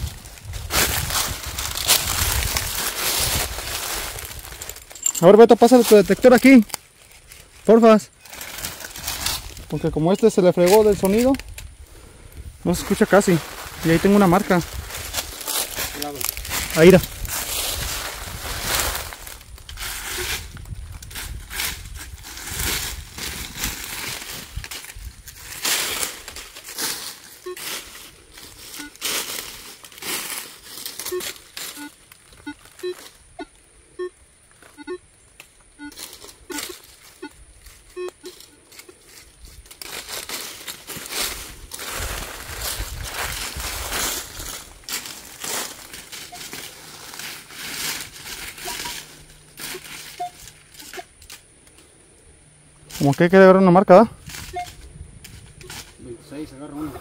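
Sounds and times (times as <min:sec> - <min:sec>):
footsteps crunching dry leaves: 0:00.0 - 0:33.4, 0:34.4 - 0:57.0
metal detector low beeps: 0:09.6 - 0:10.0, 0:27.4 - 0:27.8, 0:28.6 - 0:29.0, 0:31.0 - 0:38.6, 0:46.2 - 0:46.7, 0:48.5 - 0:51.1, 0:54.4 - 0:54.9.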